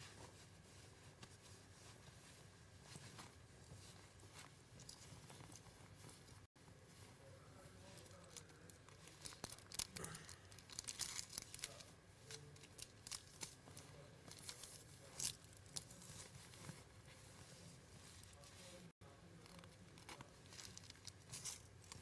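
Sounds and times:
plastic bag rustling and crackling: 7.6s - 22.0s.

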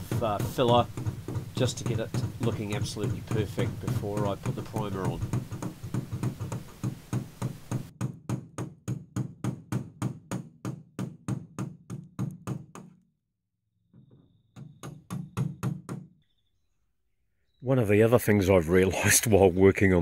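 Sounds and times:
hammer tapping on steel bar: 0.0s - 7.9s.

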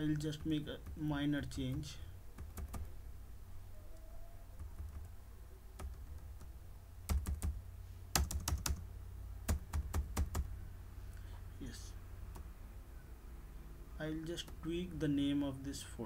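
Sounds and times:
computer keyboard typing: 0.1s - 2.9s, 4.6s - 5.1s, 5.8s - 6.5s, 7.1s - 8.8s, 9.5s - 10.5s.

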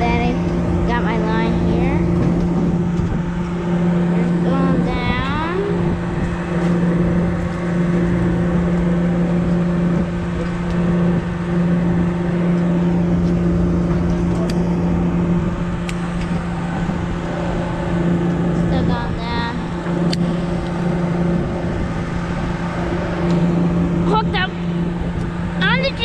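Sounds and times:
boat engine droning: 0.0s - 26.0s.

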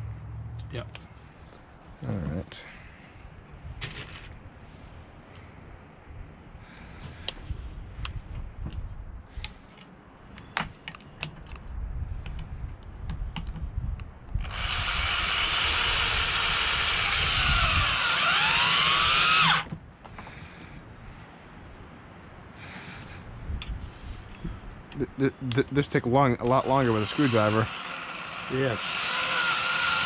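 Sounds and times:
cordless drill driving screw: 14.4s - 19.7s, 26.5s - 30.0s.

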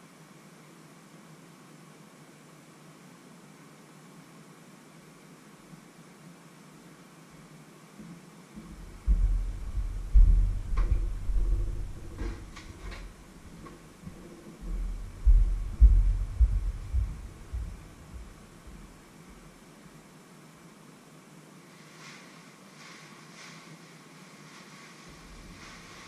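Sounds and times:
heavy footsteps: 8.6s - 19.5s, 25.1s - 26.0s.

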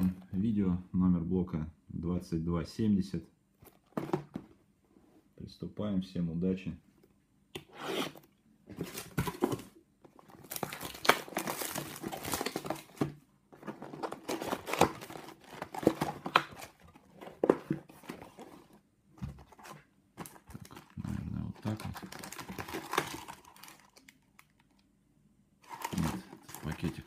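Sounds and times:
cardboard rustling: 3.6s - 5.3s, 8.0s - 24.0s, 25.6s - 27.0s
plastic shrink-wrap crinkling and tearing: 10.3s - 13.0s, 20.5s - 24.8s, 25.6s - 27.0s.

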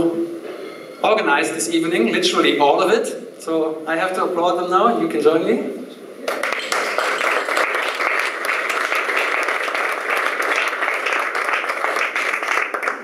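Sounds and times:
audience applauding: 6.3s - 13.0s.

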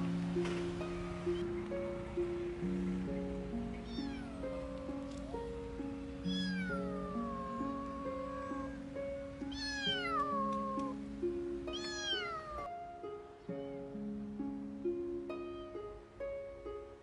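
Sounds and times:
background music: 0.0s - 17.0s
kitten meowing: 0.8s - 1.4s, 3.8s - 5.6s, 6.2s - 8.8s, 9.4s - 11.0s, 11.7s - 12.7s.

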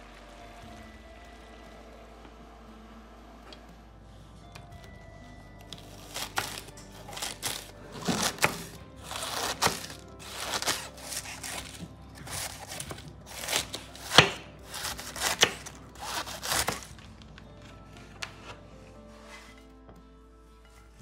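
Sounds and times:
soft background music: 0.0s - 21.0s
knife cutting food on a board: 5.7s - 16.9s.

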